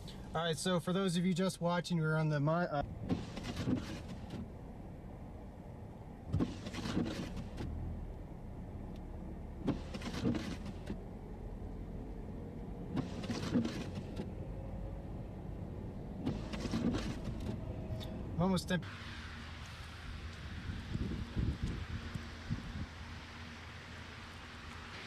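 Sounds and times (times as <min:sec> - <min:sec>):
traffic rumble: 0:00.0 - 0:25.0.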